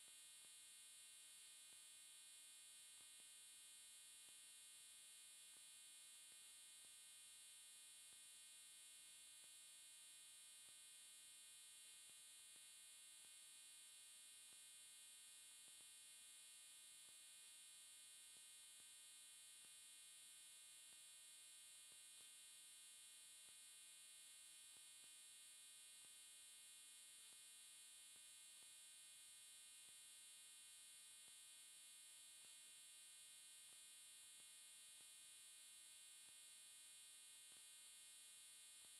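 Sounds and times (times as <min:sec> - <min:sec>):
faint electronic hum and hiss: 0:00.0 - 0:38.9.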